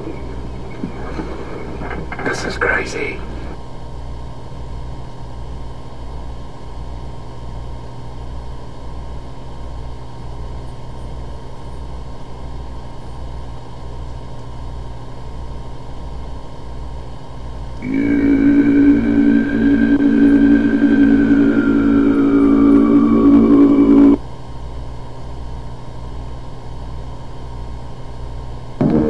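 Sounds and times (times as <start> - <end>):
didgeridoo drone: 0.0 - 2.4, 17.8 - 24.2, 28.8 - 29.0
faint high whine: 0.0 - 29.0
low electrical hum: 0.0 - 29.0.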